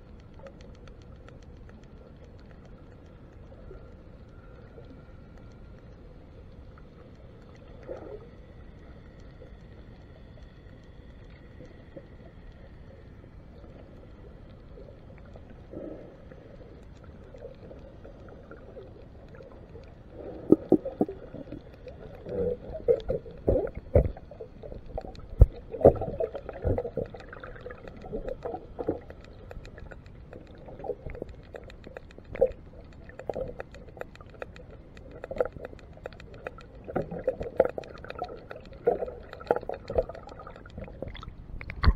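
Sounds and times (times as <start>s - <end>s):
underwater low hiss: 0.0s - 41.8s
knocks and thumps underwater: 22.7s - 29.0s, 36.4s - 41.9s.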